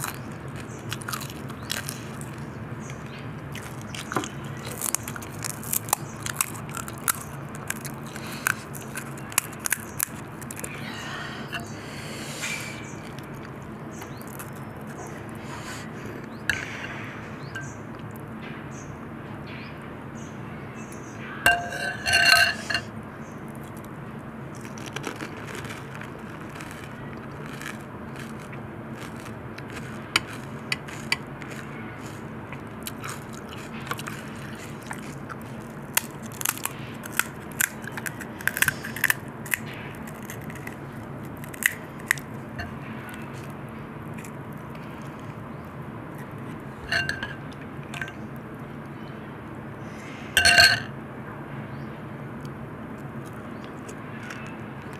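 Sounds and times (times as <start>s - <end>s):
crisp shells crunching: 0.0s - 11.2s, 12.8s - 16.8s, 24.5s - 48.2s, 53.2s - 54.9s
metal spoon clinking on glass: 21.5s - 22.9s, 46.8s - 47.4s, 50.4s - 50.9s.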